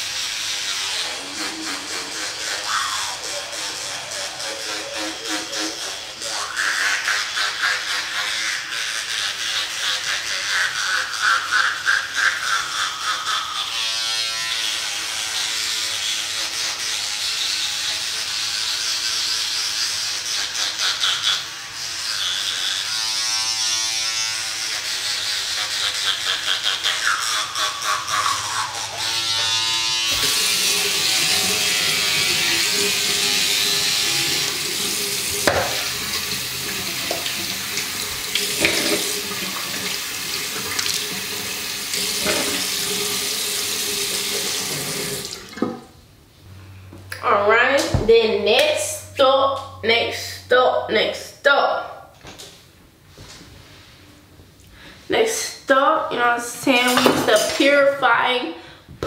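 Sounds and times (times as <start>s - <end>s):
electric toothbrush buzzing: 0.0s - 51.4s
tap running into sink: 35.3s - 43.2s, 44.1s - 45.9s.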